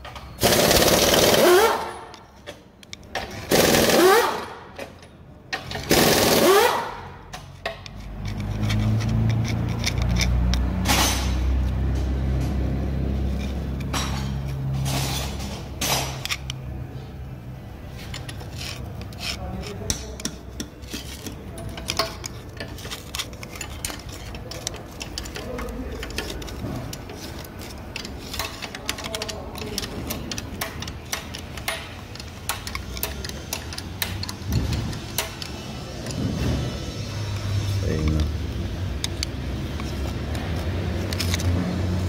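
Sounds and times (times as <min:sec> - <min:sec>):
metal clicks: 0:02.1 - 0:03.5, 0:07.3 - 0:11.8, 0:18.0 - 0:36.2, 0:37.3 - 0:41.6
screwdriver scraping metal: 0:05.6 - 0:11.8, 0:12.4 - 0:16.8, 0:17.8 - 0:42.0.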